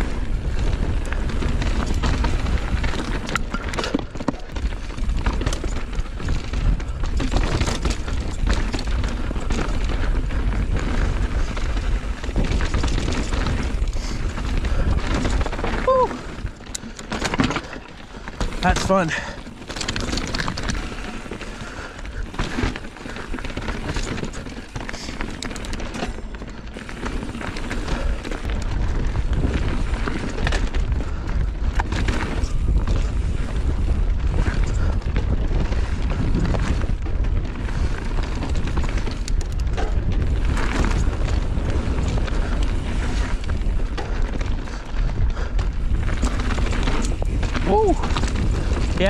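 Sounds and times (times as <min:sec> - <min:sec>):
wind buffeting microphone: 0:00.0 - 0:26.0, 0:26.6 - 0:49.0
bike knocks and rattles over rocks: 0:00.0 - 0:49.0.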